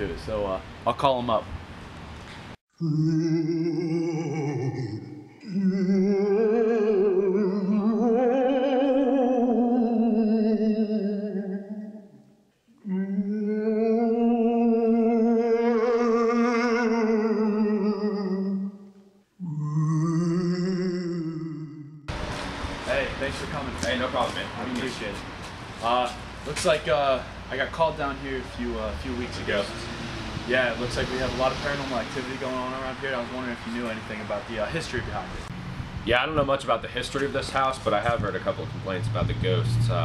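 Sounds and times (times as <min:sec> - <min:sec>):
person singing with vibrato: 0:02.7 - 0:22.1.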